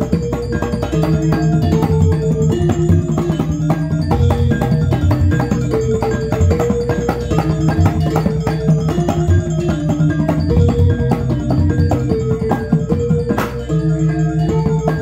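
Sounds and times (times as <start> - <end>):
hand drum strokes: 0.0 - 13.8
metallophone melody: 0.0 - 15.0
low deep drum thumps: 4.1 - 13.5.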